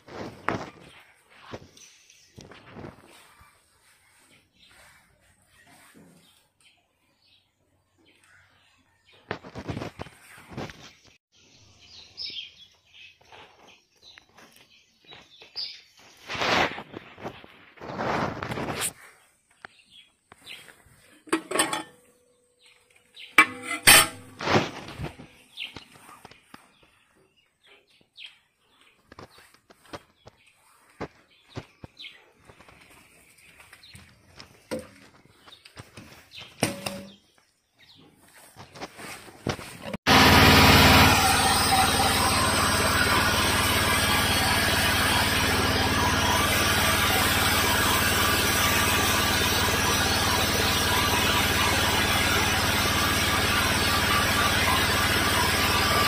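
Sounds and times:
engine running steadily: 40.1 - 56.0.

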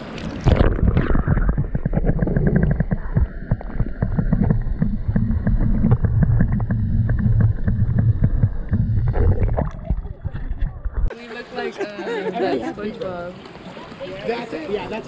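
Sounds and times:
underwater rumble of moving water: 0.0 - 11.1
small underwater clicks and ticks: 0.1 - 11.1.

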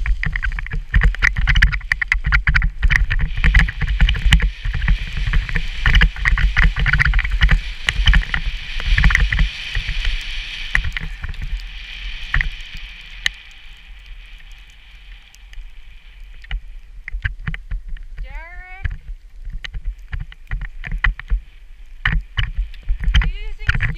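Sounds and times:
skis scraping over snow: 0.0 - 16.8, 19.8 - 23.9
wind rumbling on microphone: 0.0 - 23.9.

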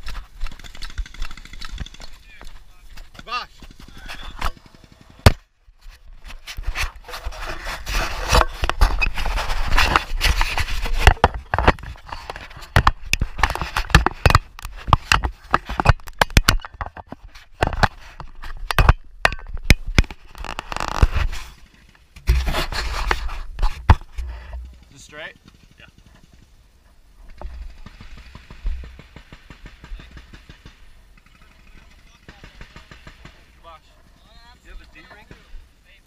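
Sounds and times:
fabric rubbing on microphone: 5.8 - 15.8, 20.2 - 21.7, 22.3 - 24.8.

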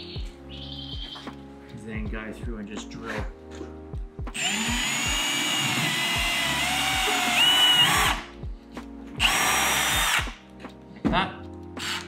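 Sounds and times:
cordless drill boring into wood: 4.4 - 8.3, 9.2 - 10.4, 11.8 - 12.0.

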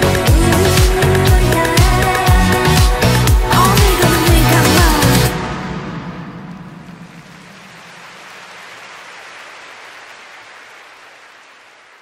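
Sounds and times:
pop music: 0.0 - 6.4
stadium crowd applauding: 6.8 - 12.0.

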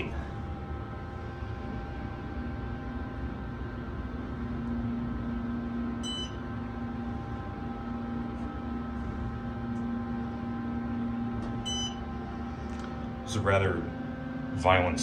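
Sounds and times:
elevator machinery humming: 0.0 - 15.0
short electronic beep: 6.0 - 6.4, 11.6 - 12.0.

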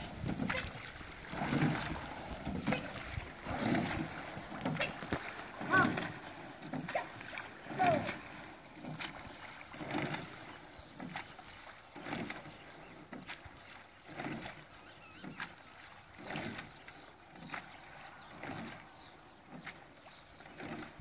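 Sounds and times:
oars knocking and swishing: 0.0 - 21.0.

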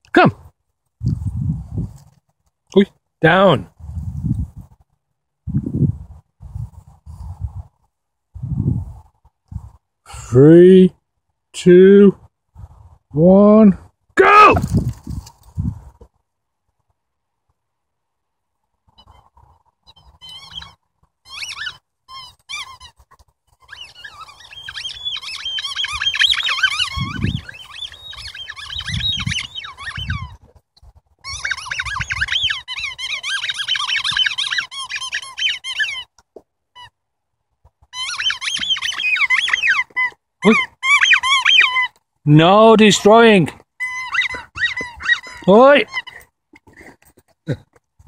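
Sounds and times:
rubber toy squeaking: 21.3 - 30.4, 31.2 - 37.0, 37.9 - 42.0, 43.8 - 46.3.

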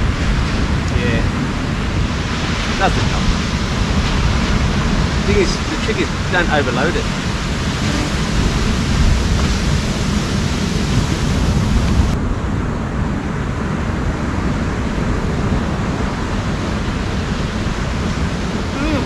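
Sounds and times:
wind and surf rushing: 0.0 - 19.0
wind rumbling on microphone: 0.0 - 19.0.

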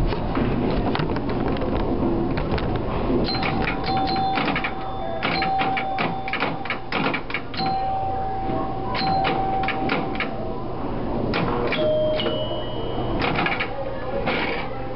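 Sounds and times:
pinball relays and flippers clattering: 3.2 - 8.0, 8.9 - 10.4, 11.3 - 14.8
ringing bell strikes: 3.3 - 6.9, 7.6 - 10.6, 11.7 - 13.3
steady electronic tone: 7.6 - 13.2.

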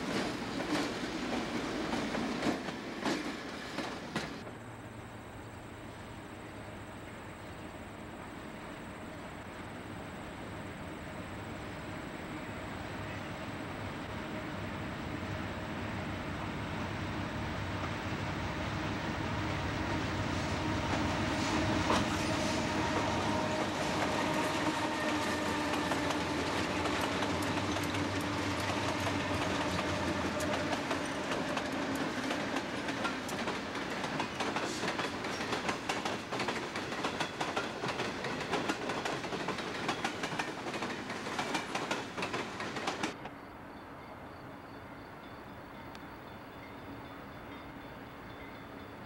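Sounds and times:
train wheels clattering over rail joints: 0.0 - 4.5, 20.9 - 43.2
diesel locomotive engines running: 4.2 - 44.8.

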